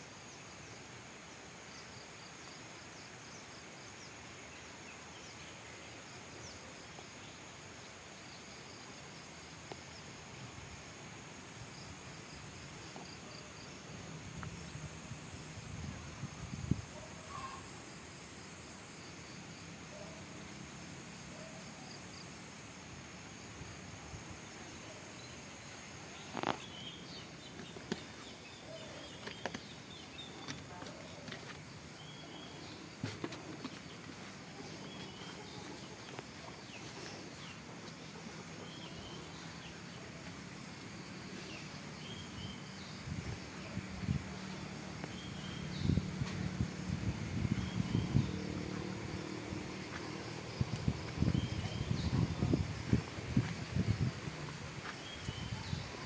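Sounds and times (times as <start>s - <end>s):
faint outdoor hiss: 0.0s - 56.0s
insects droning: 0.0s - 56.0s
faint chirps: 15.8s - 18.2s, 24.0s - 56.0s
faint bird chirps: 17.0s - 17.8s.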